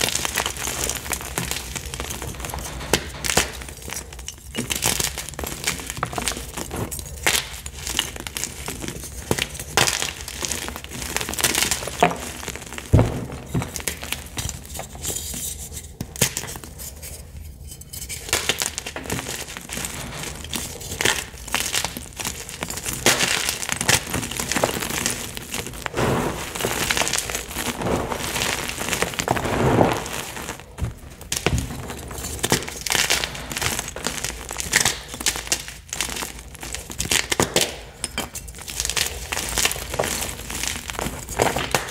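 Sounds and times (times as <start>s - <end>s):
chalk blocks crunching by hand: 18.3s - 37.8s.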